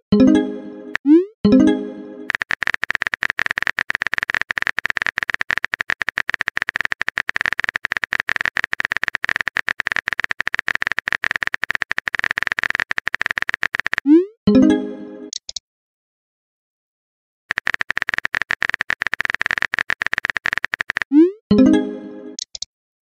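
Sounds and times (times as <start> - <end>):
phone keyboard typing clicks: 2.3 - 14.1, 17.5 - 21.2.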